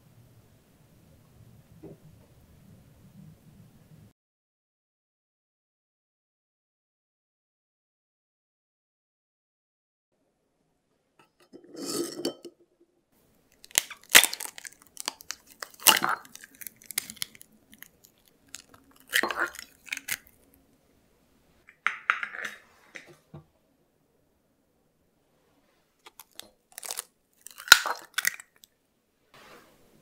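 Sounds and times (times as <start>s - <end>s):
eggshells cracking: 13.6s - 20.5s, 26.1s - 28.7s
ceramic clinks: 21.7s - 22.6s.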